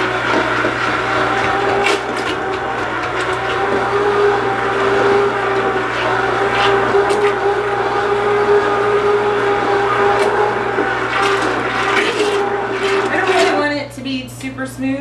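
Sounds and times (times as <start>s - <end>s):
immersion blender motor whine: 0.0s - 13.8s
sauce churning: 0.0s - 13.8s.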